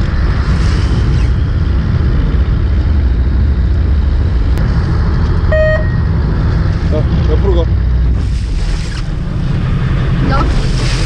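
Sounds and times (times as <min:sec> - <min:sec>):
boat engine rumbling: 0:00.0 - 0:11.0
short flat tone: 0:05.5 - 0:06.1.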